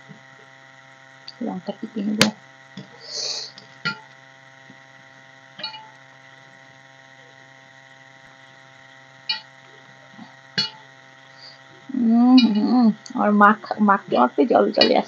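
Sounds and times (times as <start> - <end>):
electrical hum: 0.0 - 15.0
taps against steel plate: 3.8 - 4.1, 9.3 - 9.5, 10.6 - 10.8.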